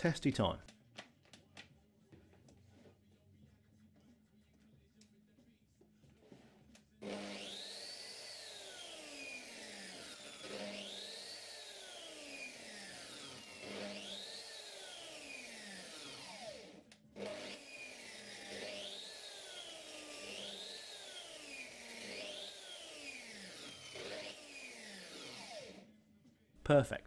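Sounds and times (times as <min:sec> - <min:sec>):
saw motor spinning up and down: 0:07.0 - 0:25.9.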